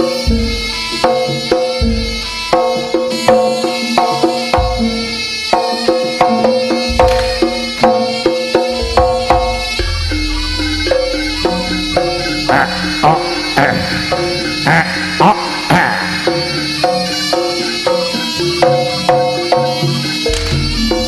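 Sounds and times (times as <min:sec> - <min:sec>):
hand drums: 0:00.0 - 0:21.0
gamelan metal keys and gongs: 0:06.6 - 0:21.0
deep booms: 0:06.9 - 0:07.8, 0:08.7 - 0:17.3.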